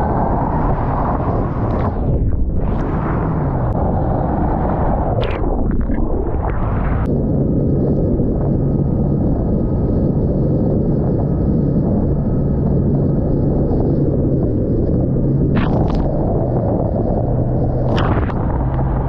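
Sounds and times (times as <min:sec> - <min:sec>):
wind rush on microphone: 0:00.0 - 0:19.0
outboard motor hum: 0:07.6 - 0:19.0.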